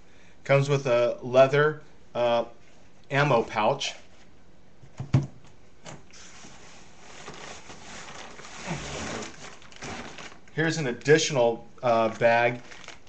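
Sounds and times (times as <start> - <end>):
packaging rustling: 6.3 - 10.6, 11.9 - 13.0.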